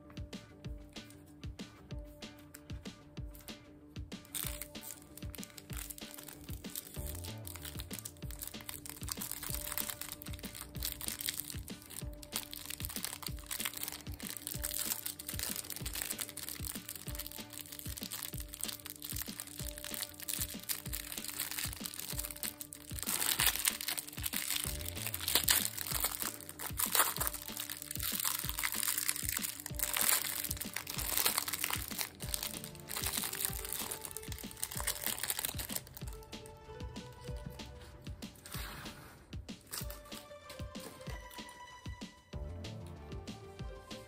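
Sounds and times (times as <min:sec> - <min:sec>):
background music: 0:00.0 - 0:44.0
plastic wrapper crinkling: 0:04.3 - 0:36.2, 0:39.7 - 0:41.5.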